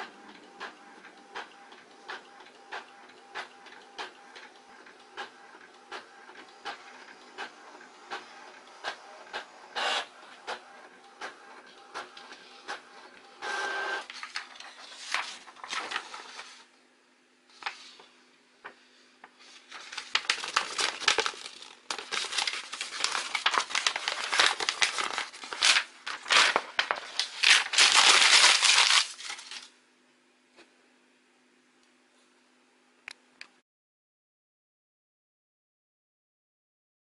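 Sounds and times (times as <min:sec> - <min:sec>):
paper rustling and crumpling: 0:14.1 - 0:16.6, 0:17.5 - 0:18.0, 0:19.4 - 0:29.7.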